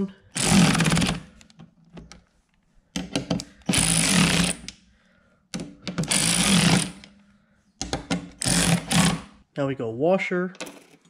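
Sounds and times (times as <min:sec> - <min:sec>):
cordless electric ratchet driving bolts: 0:03.6 - 0:04.7, 0:06.0 - 0:07.1, 0:08.4 - 0:09.2.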